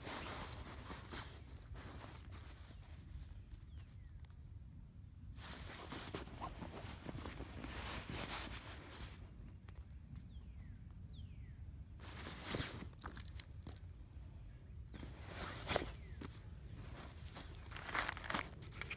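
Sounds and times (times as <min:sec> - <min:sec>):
nylon fabric rustling: 0:15.0 - 0:18.9.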